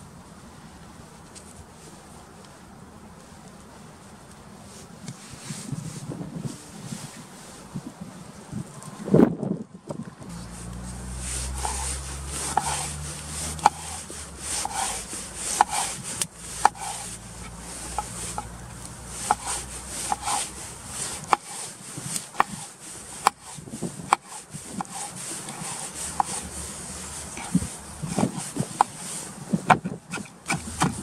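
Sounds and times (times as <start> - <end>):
soft slicing: 10.3 - 29.1.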